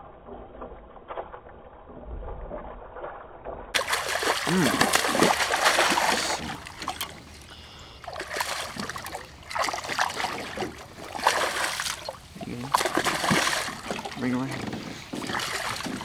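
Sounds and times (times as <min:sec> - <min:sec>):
fish splashing at water surface: 0:03.8 - 0:16.0.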